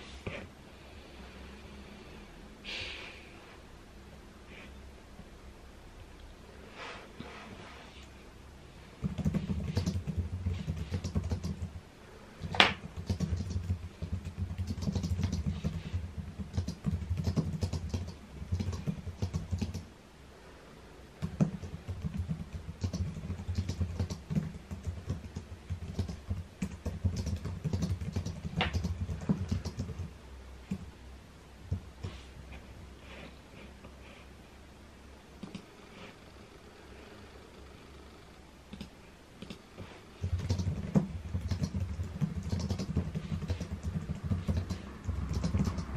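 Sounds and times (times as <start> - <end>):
rapid typing on keyboard: 9.0 - 11.8, 12.4 - 19.9, 21.2 - 30.1, 30.7 - 30.9, 40.2 - 45.9.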